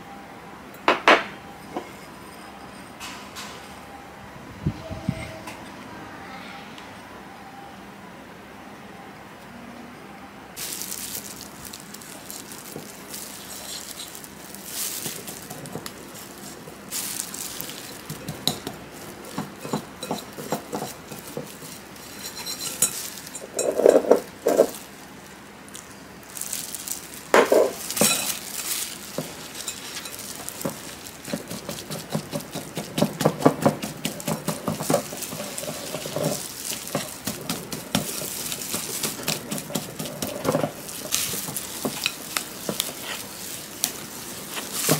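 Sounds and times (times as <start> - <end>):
whisk scraping glass bowl: 13.2 - 24.8, 27.5 - 44.9
whisk clinking on glass: 17.5 - 24.8, 27.3 - 44.9.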